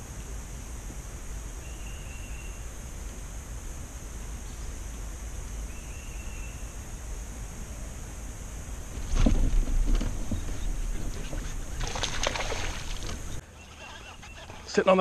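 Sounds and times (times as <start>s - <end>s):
high hiss: 0.0s - 13.4s
low rumble: 2.7s - 13.4s.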